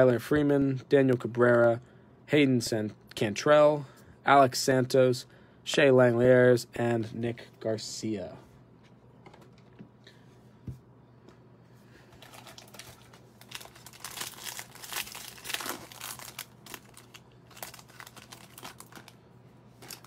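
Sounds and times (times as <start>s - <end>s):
card pack wrapper tearing and crinkling: 12.2s - 20.0s.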